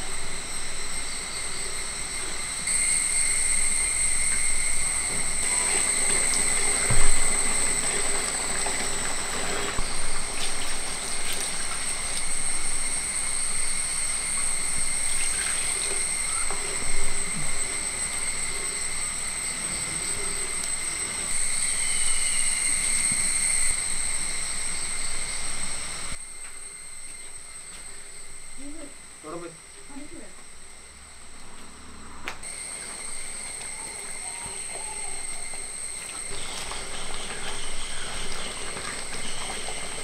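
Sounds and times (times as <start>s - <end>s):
liquid simmering in pan: 0.0s - 28.8s, 32.4s - 40.0s
steady high-pitched whine: 0.0s - 40.0s
liquid pouring: 2.2s - 19.0s, 32.4s - 40.0s.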